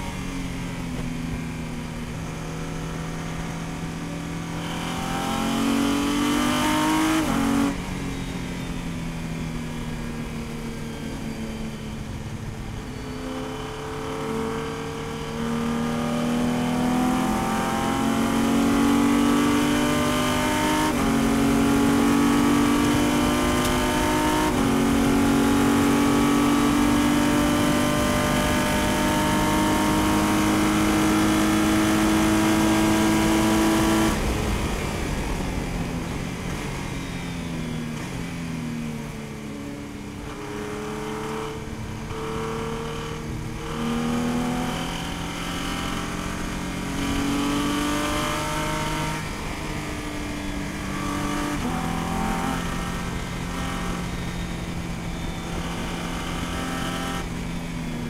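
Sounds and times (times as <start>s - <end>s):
racing car engine revving: 13.8s - 34.4s, 40.3s - 49.7s.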